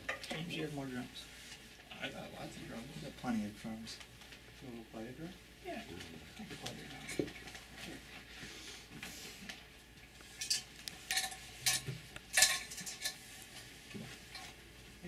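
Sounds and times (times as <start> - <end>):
objects clinking and clattering: 10.4 - 13.2.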